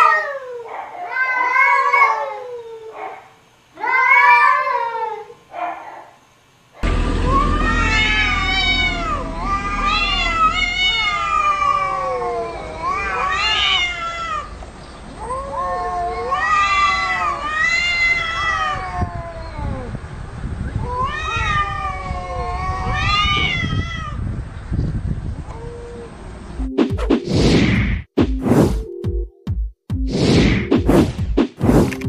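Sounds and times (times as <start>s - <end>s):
cats yowling: 0.0s - 6.2s, 6.8s - 14.6s, 15.2s - 20.0s, 20.8s - 24.2s.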